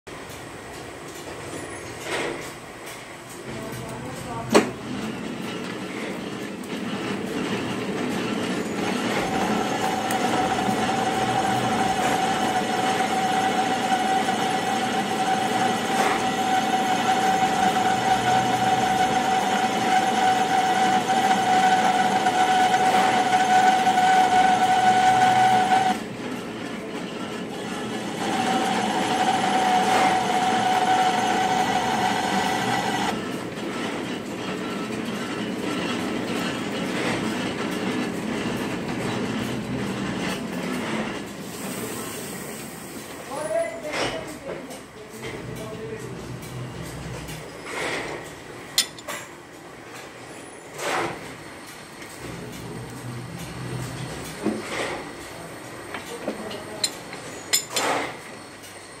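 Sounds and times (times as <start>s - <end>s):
metal lathe running: 4.8s - 41.4s.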